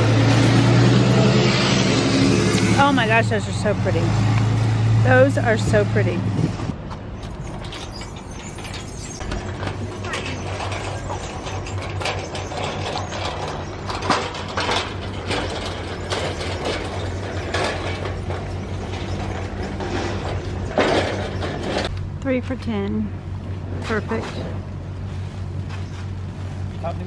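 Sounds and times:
metal cart rattling over concrete: 0:07.2 - 0:21.9.

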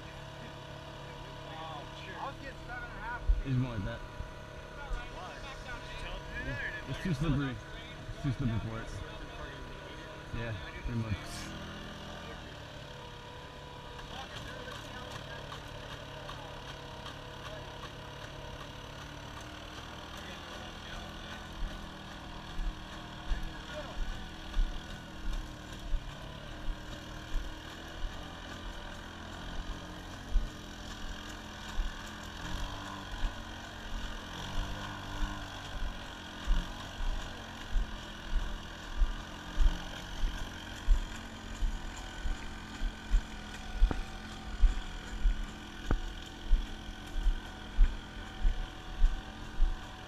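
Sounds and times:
robot engine droning: 0:31.7 - 0:50.0
low walking thumps: 0:41.6 - 0:49.8.

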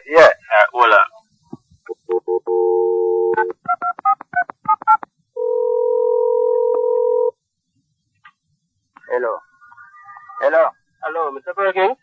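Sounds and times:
dial tone: 0:05.4 - 0:07.3.

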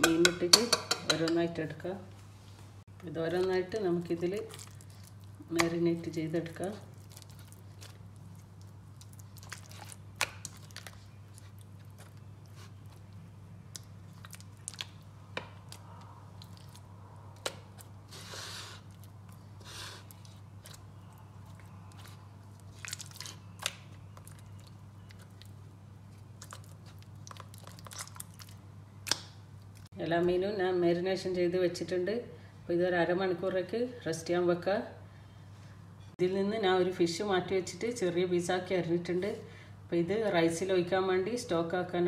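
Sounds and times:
wet paste squelching: 0:03.4 - 0:29.9.

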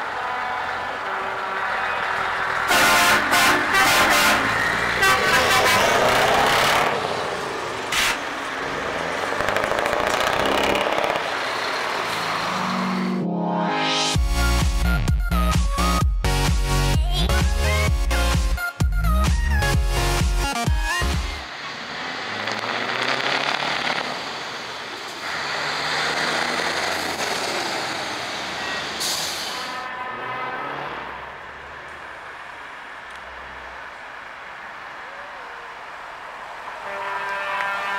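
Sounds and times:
truck diesel engine accelerating: 0:00.0 - 0:14.5, 0:19.6 - 0:36.3
music: 0:13.1 - 0:21.4
air brake hiss: 0:28.9 - 0:29.8.

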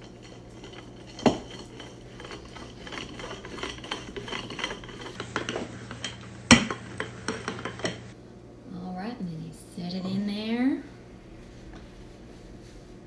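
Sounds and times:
rolling pin rolling dough: 0:00.0 - 0:08.2.

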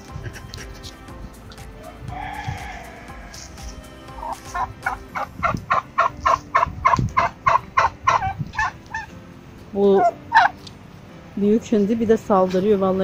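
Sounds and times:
turkeys calling: 0:01.8 - 0:09.1, 0:09.8 - 0:10.7.

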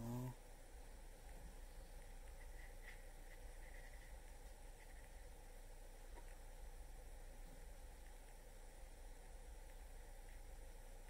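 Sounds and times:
man murmuring: 0:00.0 - 0:00.4
steady low hum: 0:00.0 - 0:11.0.

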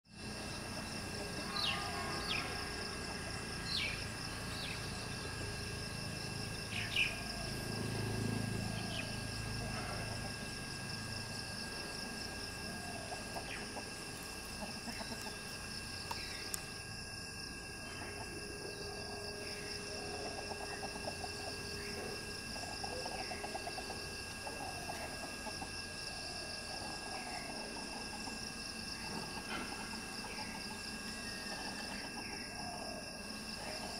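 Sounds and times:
insects droning: 0:00.1 - 0:33.9
chickens clucking softly: 0:13.1 - 0:15.5, 0:20.0 - 0:21.6, 0:22.6 - 0:25.8.

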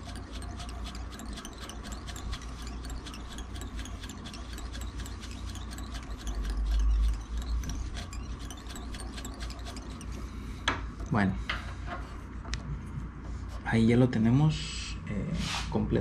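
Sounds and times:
thread ticking off a bobbin: 0:00.0 - 0:10.4.

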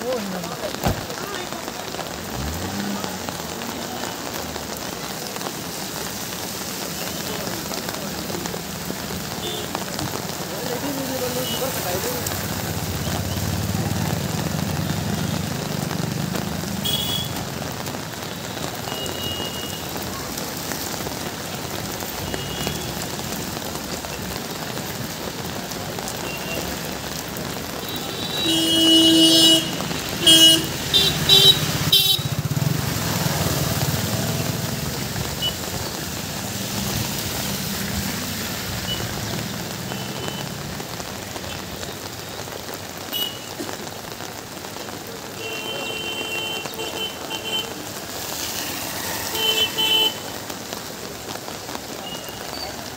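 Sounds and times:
rain on wet street: 0:00.0 - 0:52.9
traffic passing: 0:00.0 - 0:52.9
vehicle horn: 0:16.8 - 0:17.4, 0:27.8 - 0:32.3.

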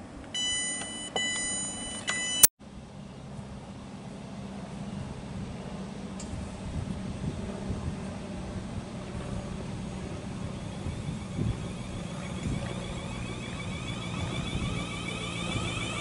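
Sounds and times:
train motor whine: 0:00.0 - 0:02.5, 0:08.1 - 0:16.0
electric train humming: 0:05.8 - 0:16.0.

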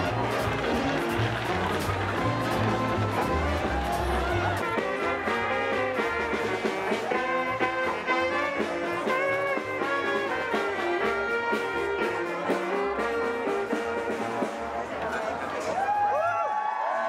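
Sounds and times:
brass band playing: 0:00.0 - 0:15.4.

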